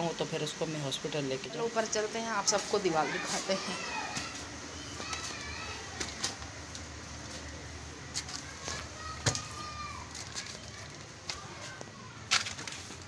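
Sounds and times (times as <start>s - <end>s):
faint distant voices: 0.0s - 13.0s.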